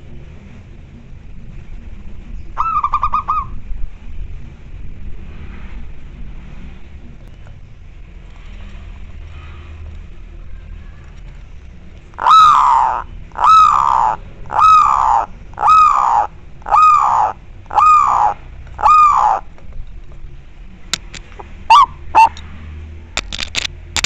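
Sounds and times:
dove calling: 2.5 - 3.6, 12.1 - 19.6, 21.3 - 22.5.

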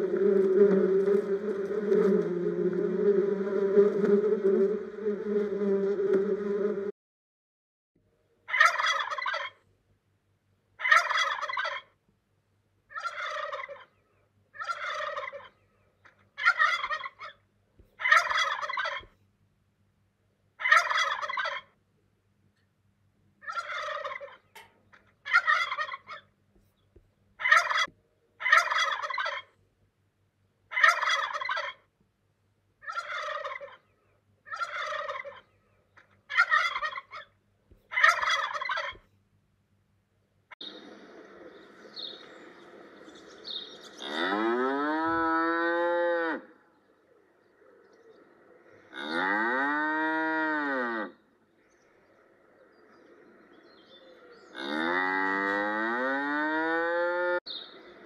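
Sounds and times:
turkey gobbling: 8.5 - 9.6, 10.8 - 11.9, 12.9 - 14.0, 14.6 - 15.6, 16.4 - 19.1, 20.6 - 21.7, 23.4 - 24.6, 25.2 - 26.3, 27.4 - 29.5, 30.7 - 31.8, 32.8 - 33.9, 34.5 - 35.5, 36.3 - 37.3, 37.9 - 39.0.

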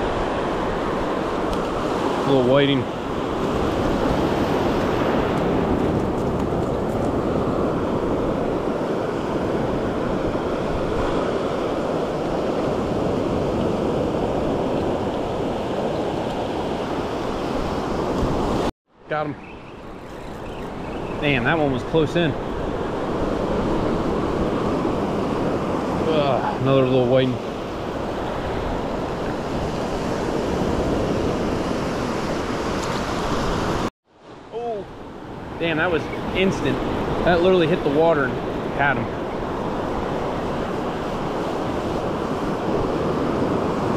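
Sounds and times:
wind on microphone: 0.0 - 18.7, 34.9 - 43.9
ocean surf washing: 0.0 - 43.9.

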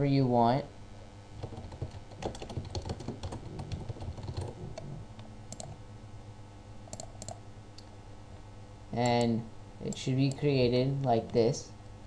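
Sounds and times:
keyboard typing: 1.4 - 5.8, 6.9 - 7.4.

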